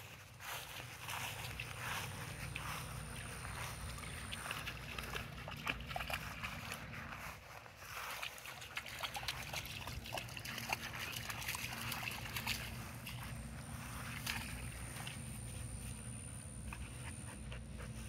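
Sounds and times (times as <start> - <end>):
low steady rumble: 0.1 - 7.8, 9.2 - 18.0
dog splashing in water: 0.6 - 7.3, 8.0 - 16.1
small drips and splashes: 1.2 - 6.9, 8.0 - 15.2.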